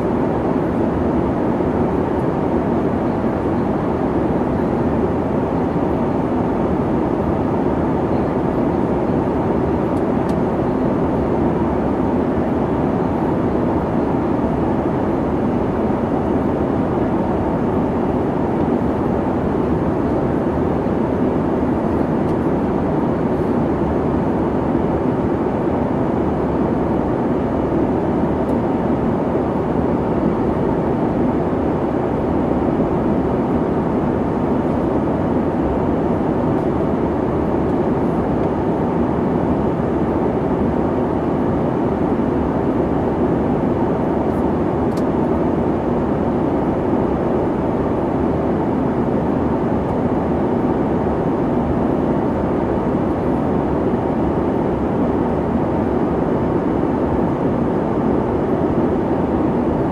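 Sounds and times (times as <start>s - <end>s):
jet airliner cabin noise: 0.0s - 59.9s.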